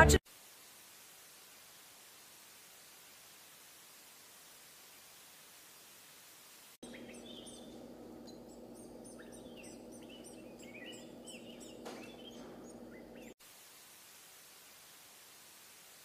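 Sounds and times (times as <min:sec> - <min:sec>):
faint hiss: 0:00.2 - 0:06.9, 0:13.2 - 0:16.0
chicks cheeping: 0:06.8 - 0:13.4
steady low hum: 0:06.8 - 0:13.4.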